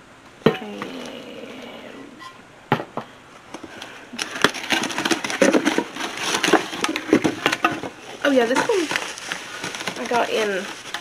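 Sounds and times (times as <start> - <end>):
bubble wrap crinkling: 3.6 - 11.0.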